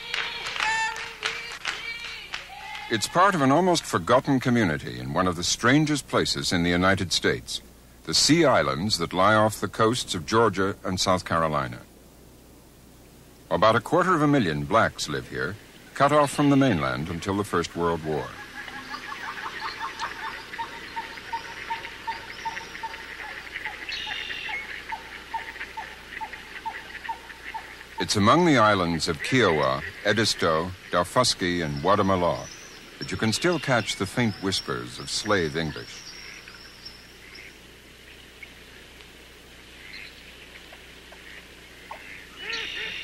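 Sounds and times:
faint background noise: 0:00.0 - 0:43.0
birds chirping and calling: 0:14.4 - 0:38.9, 0:39.7 - 0:43.0.

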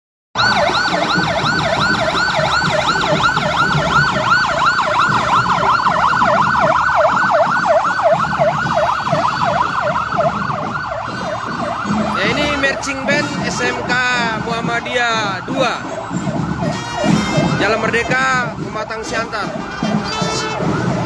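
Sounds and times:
electronic siren yelping: 0:00.4 - 0:21.0.

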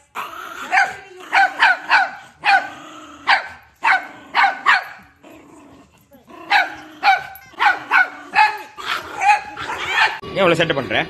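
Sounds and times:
small dog yapping: 0:06.5 - 0:10.2.

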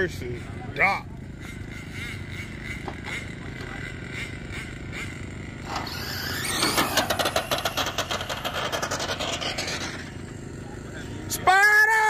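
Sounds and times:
rc car rattling pulse: 0:01.3 - 0:10.6.

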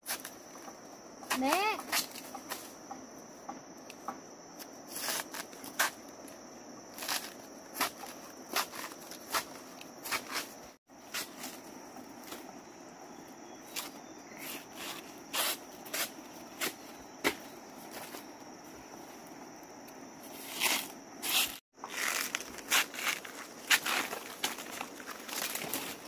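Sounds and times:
footsteps crunching dry leaves: 0:20.4 - 0:26.0.

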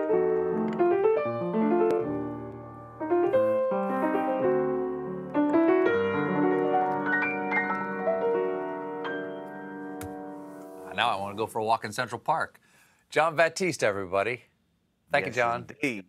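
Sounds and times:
solo piano chords and melody: 0:00.0 - 0:10.9.

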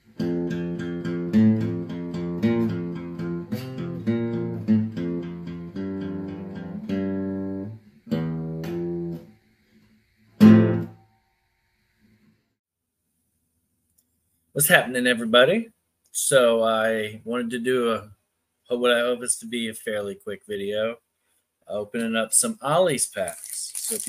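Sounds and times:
strummed guitar: 0:00.0 - 0:09.3, 0:10.4 - 0:11.0.

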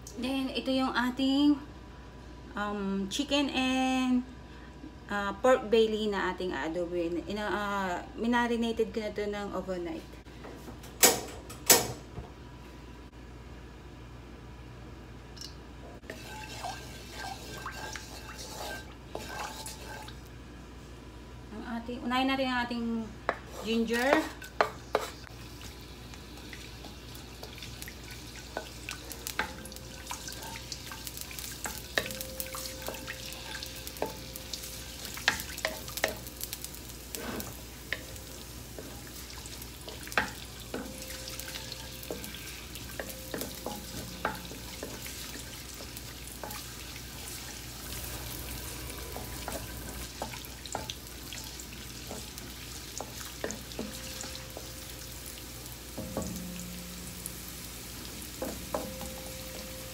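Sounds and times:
ginger sizzling in oil: 0:16.0 - 0:20.4, 0:23.5 - 0:59.9
wooden spatula scraping pan: 0:16.2 - 0:20.2, 0:37.1 - 0:37.6.

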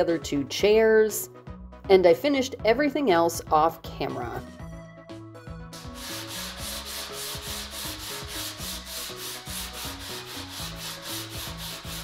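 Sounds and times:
sandpaper rubbing on wood: 0:05.8 - 0:12.0.

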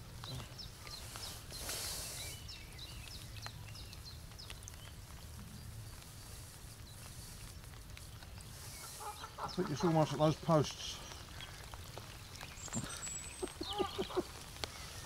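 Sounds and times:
small birds chirping: 0:00.0 - 0:15.0
brief hiss: 0:01.6 - 0:02.4.

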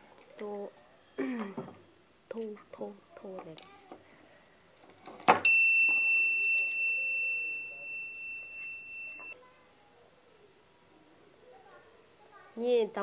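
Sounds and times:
high bell-like ring: 0:05.5 - 0:09.4.

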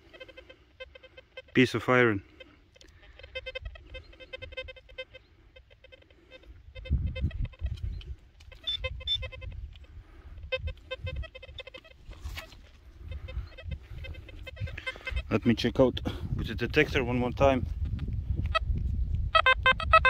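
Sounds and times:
metal detector probe beeping: 0:00.0 - 0:15.4.

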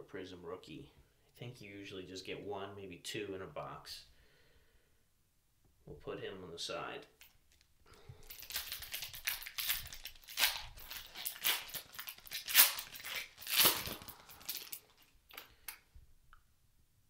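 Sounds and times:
card pack wrapper tearing: 0:08.2 - 0:15.8.

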